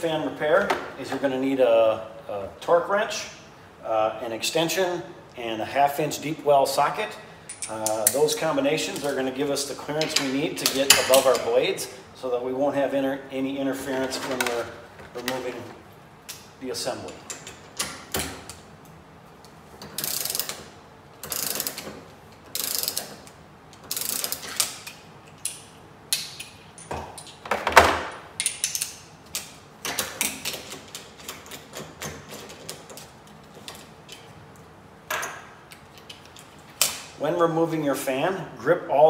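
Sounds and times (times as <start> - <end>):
torque wrench ratcheting: 20.0 - 20.6, 21.2 - 21.8, 22.5 - 23.2, 23.8 - 24.6.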